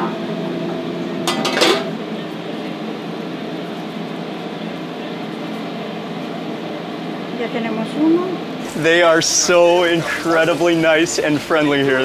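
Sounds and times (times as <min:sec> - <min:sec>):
kitchen ventilation hum: 0:00.0 - 0:12.0
dishes clattering: 0:01.2 - 0:02.0.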